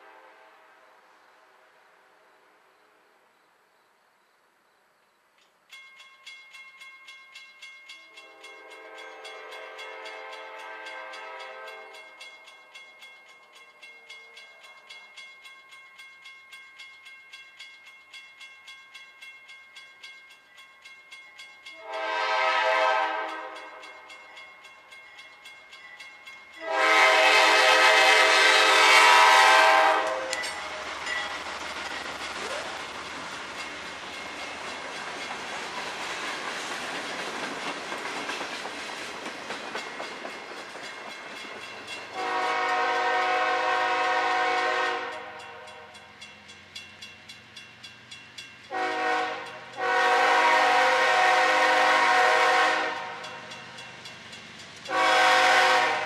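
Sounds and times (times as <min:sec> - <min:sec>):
locomotive horn blasts: 0:00.0 - 0:00.6, 0:08.2 - 0:12.0, 0:21.8 - 0:23.8, 0:26.6 - 0:30.4, 0:42.2 - 0:46.0, 0:48.7 - 0:53.3, 0:54.9 - 0:56.0
crossing warning bell ringing: 0:05.4 - 0:36.5, 0:39.7 - 0:56.0.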